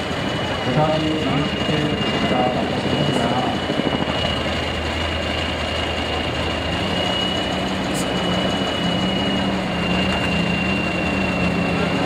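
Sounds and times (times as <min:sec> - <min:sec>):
heavy diesel truck engine: 0:00.0 - 0:12.0
high-pitched steady tone: 0:00.3 - 0:12.0.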